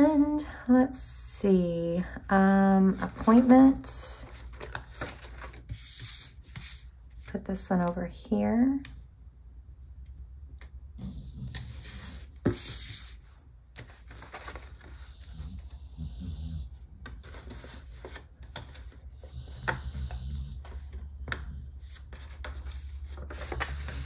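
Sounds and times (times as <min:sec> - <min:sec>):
paper stickers rustling and rubbing: 0:02.9 - 0:07.3, 0:13.8 - 0:15.2, 0:21.8 - 0:24.0.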